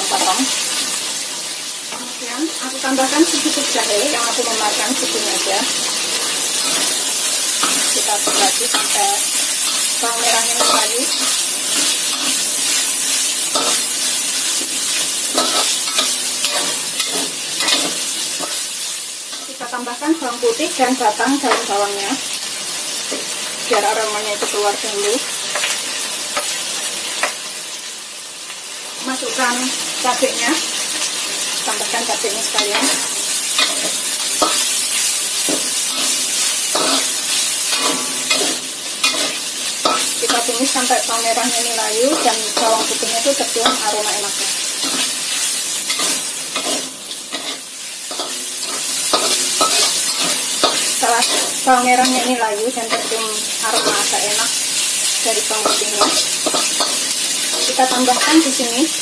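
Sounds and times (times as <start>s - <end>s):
food sizzling in a wok: 0.0s - 59.0s
metal spatula scraping wok: 2.8s - 19.9s, 30.8s - 58.6s.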